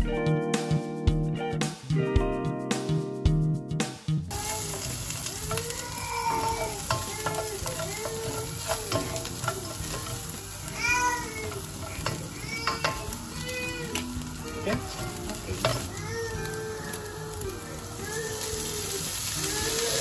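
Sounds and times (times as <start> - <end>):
food sizzling in a pan: 4.3 - 20.0
spatula squeaking across pan: 4.4 - 17.0.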